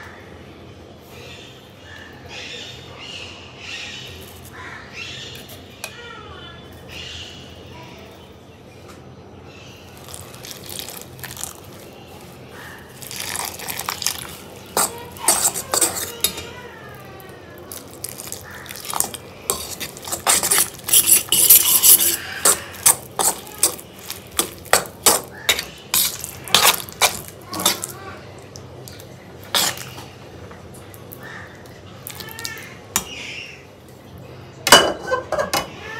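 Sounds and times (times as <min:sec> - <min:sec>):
utensils clinking against pots: 0:13.0 - 0:16.6, 0:18.1 - 0:28.0, 0:29.4 - 0:30.0, 0:34.7 - 0:35.7.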